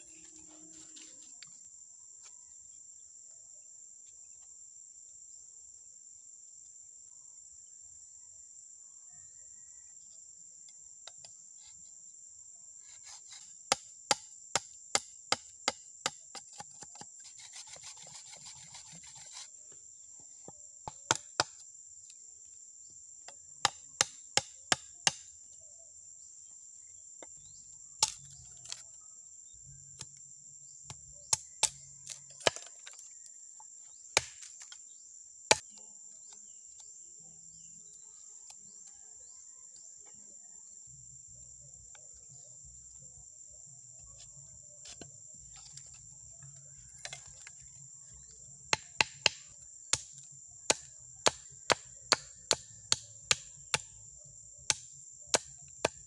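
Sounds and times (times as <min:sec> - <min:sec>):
knife scraping bamboo: 0:12.8 - 0:13.9, 0:16.3 - 0:19.6, 0:32.4 - 0:33.0
knife chopping bamboo: 0:13.0 - 0:19.5, 0:20.8 - 0:21.6, 0:23.6 - 0:25.2, 0:28.0 - 0:28.8, 0:30.9 - 0:33.0, 0:34.2 - 0:34.7, 0:35.5 - 0:35.8, 0:48.7 - 0:53.9, 0:54.7 - 0:56.0.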